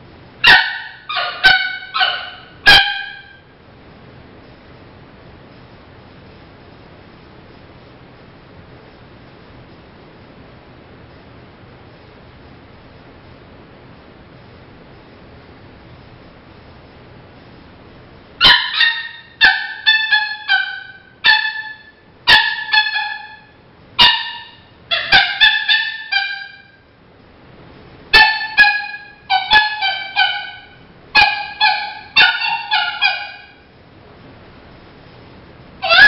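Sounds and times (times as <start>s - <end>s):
predator call coyote yips: 0.4s - 3.4s, 18.4s - 23.4s, 24.0s - 26.7s, 28.2s - 33.6s.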